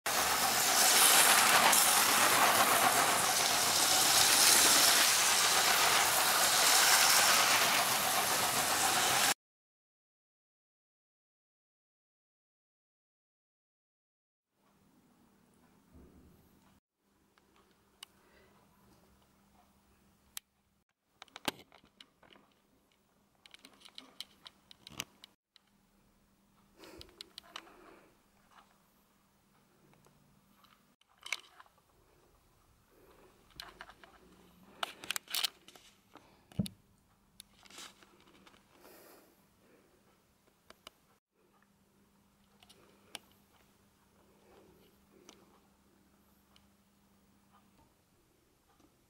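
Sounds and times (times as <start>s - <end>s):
toy train motor whirring: 0.1s - 9.4s, 33.5s - 35.9s.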